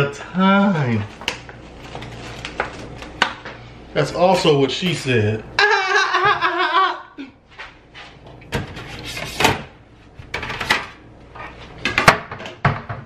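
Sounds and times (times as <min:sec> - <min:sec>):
kitchen cabinets knocking: 0:11.9 - 0:13.0.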